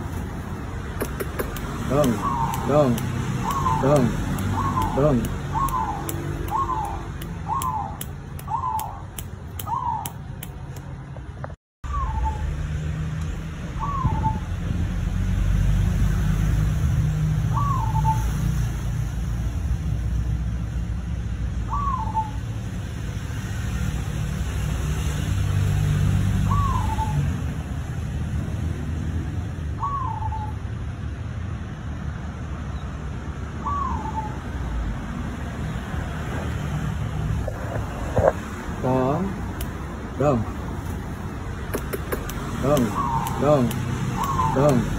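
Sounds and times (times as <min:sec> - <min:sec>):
dove cooing: 0:01.0 - 0:09.0.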